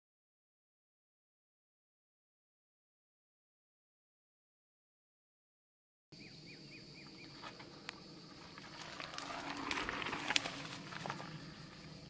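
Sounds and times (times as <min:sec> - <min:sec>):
bird chirping: 0:06.2 - 0:09.7
bike tyres crunching over stones: 0:07.1 - 0:12.0
bike clicks: 0:07.3 - 0:11.9.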